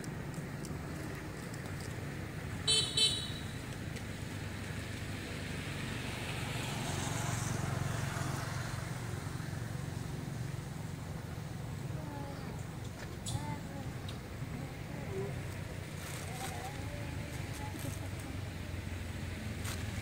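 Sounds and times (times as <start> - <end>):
road traffic rumble: 0.0 - 20.0
vehicle horn toots: 2.6 - 3.6
vehicle passing: 2.6 - 12.0.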